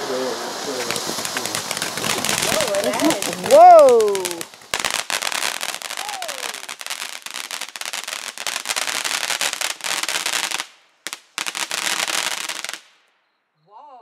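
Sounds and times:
firework fountain crackling: 0.0 - 13.0
single firework pops: 0.7 - 5.8.

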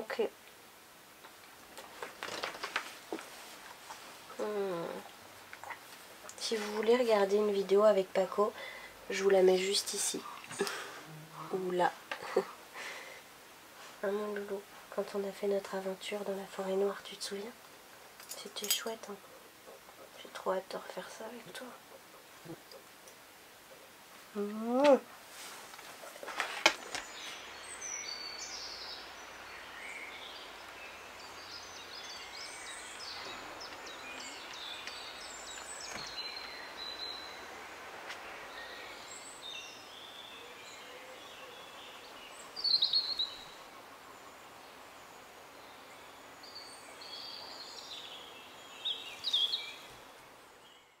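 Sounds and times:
faint outdoor hiss: 0.0 - 51.0
birds chirping and calling: 38.5 - 44.8.

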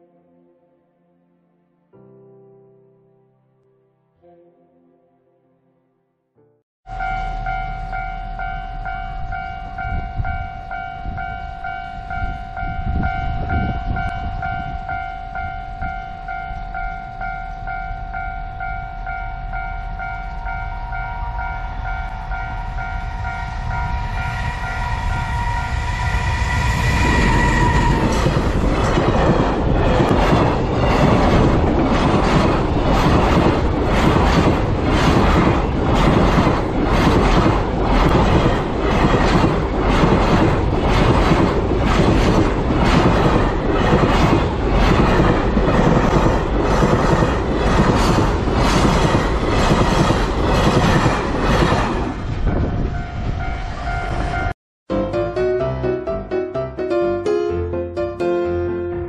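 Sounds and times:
train wheels clattering over rail joints: 28.0 - 52.0.

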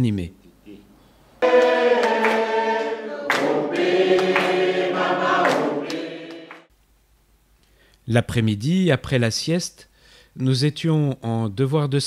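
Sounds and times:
group singing a hymn: 1.4 - 6.7.

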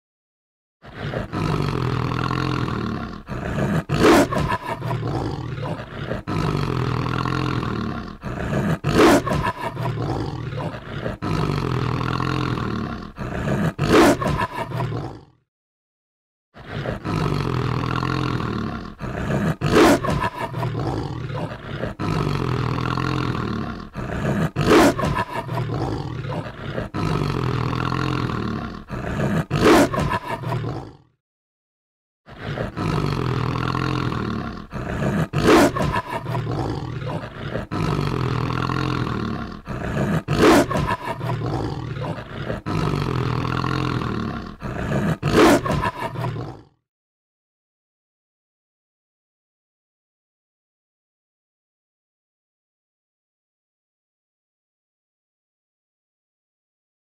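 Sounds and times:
wolf growling: 0.8 - 15.4, 16.6 - 31.1, 32.3 - 46.8
wolf snarling: 0.8 - 15.4, 16.6 - 31.1, 32.3 - 46.8.

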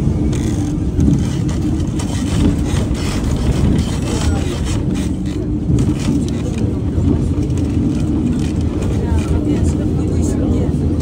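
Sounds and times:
faint voices: 3.6 - 11.0.

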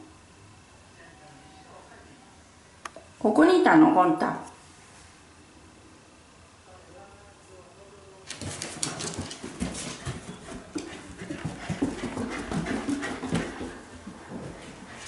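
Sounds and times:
dog claws clicking on stairs: 8.3 - 14.8.

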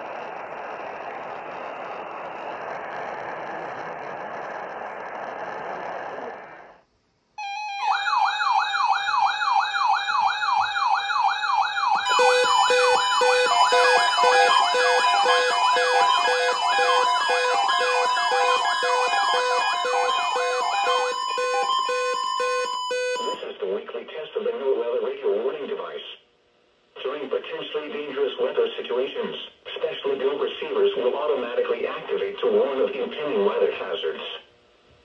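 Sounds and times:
warbling siren: 7.4 - 23.4
alert radio steady tone: 7.4 - 23.6
pulsing beep: 12.0 - 23.4
radio static hiss: 26.9 - 34.5.

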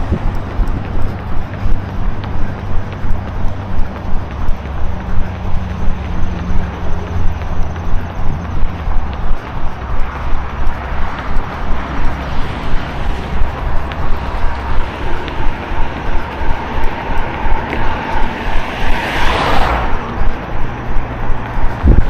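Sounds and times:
running footsteps: 0.0 - 22.0
vehicle passing: 0.0 - 22.0.

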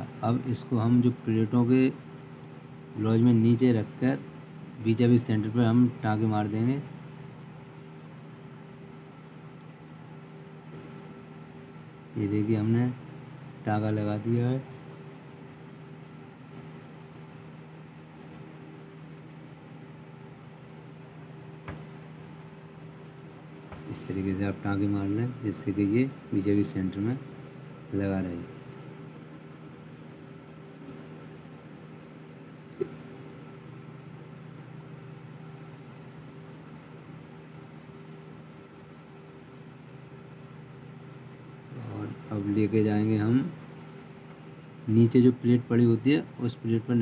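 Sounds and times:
faint whine: 0.0 - 47.0
steady low hum: 0.0 - 47.0.

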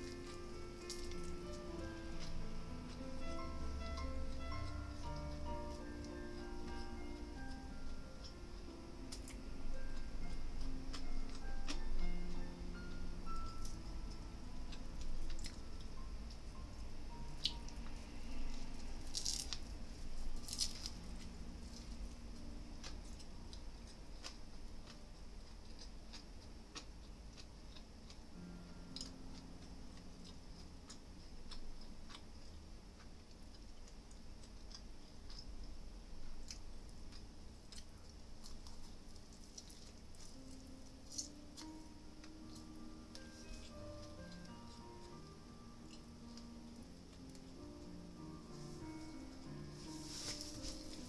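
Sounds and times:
crisp bites: 0.0 - 2.5, 17.4 - 30.0, 36.4 - 45.2
person chewing: 0.0 - 51.0.

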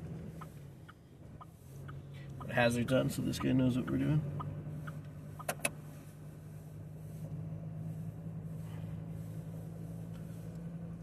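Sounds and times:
car driving low drone: 0.0 - 11.0
sharp clicks: 4.4 - 5.8.

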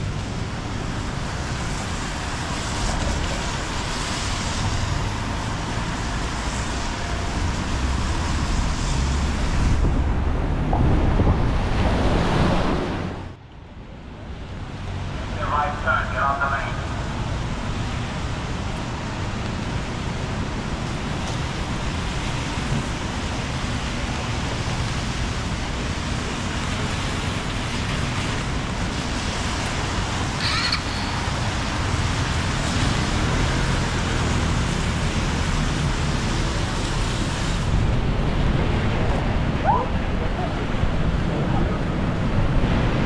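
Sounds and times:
tyres hissing on wet road: 0.0 - 13.4, 14.1 - 43.0
cars passing: 0.0 - 43.0.

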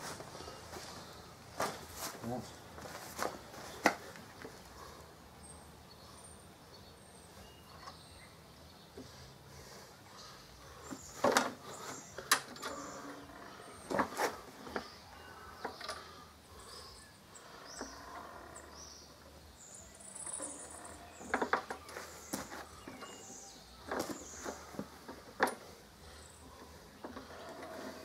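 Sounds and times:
faint bird chirps: 14.6 - 24.9.

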